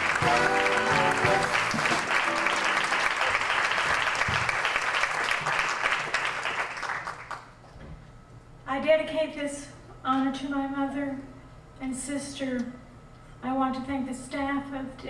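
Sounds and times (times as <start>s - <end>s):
music playing: 0.0s - 4.0s
audience applauding: 0.0s - 7.6s.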